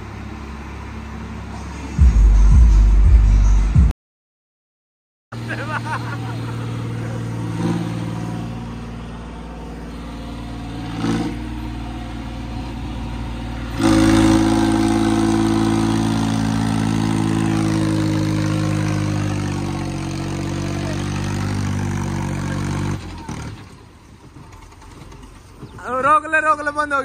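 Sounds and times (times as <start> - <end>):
diesel tractor engine revving: 0.0 - 3.9, 5.3 - 27.0.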